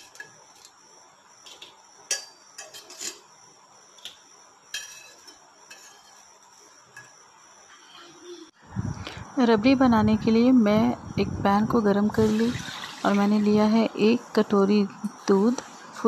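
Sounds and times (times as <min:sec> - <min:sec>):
metal spatula scraping frying pan: 0:02.6 - 0:03.3, 0:04.7 - 0:06.8.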